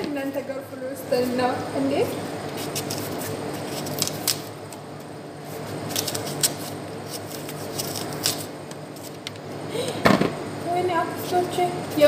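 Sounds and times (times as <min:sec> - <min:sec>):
faint steady hum: 0:00.0 - 0:12.0
knife scraping apple peel: 0:02.5 - 0:04.5, 0:05.4 - 0:09.2.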